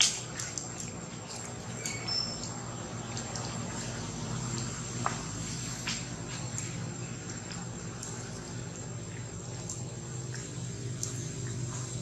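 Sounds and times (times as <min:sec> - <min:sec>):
low hum and hiss: 0:00.0 - 0:12.0
high chirp: 0:01.8 - 0:02.5.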